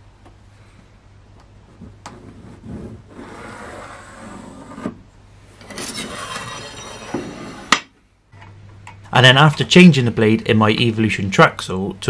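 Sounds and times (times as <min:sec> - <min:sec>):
metal rule sliding over wood: 0:05.6 - 0:07.8.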